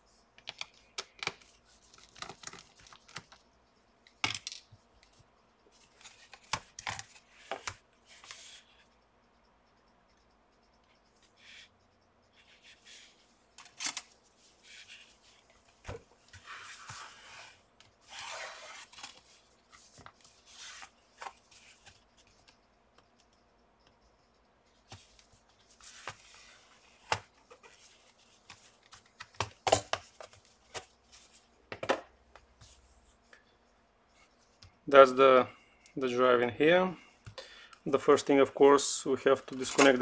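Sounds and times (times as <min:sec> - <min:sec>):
laptop cover scraping: 0:16.3 - 0:19.2.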